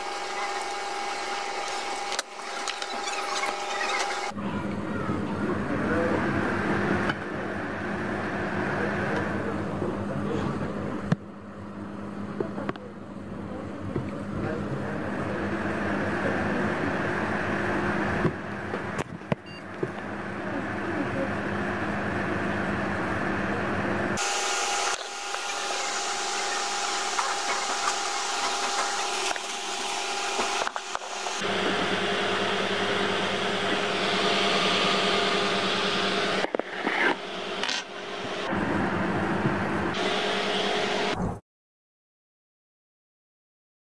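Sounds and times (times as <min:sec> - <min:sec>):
computer hum: 0:00.0 - 0:04.4, 0:13.5 - 0:41.2
computer fan whirring: 0:00.0 - 0:41.3.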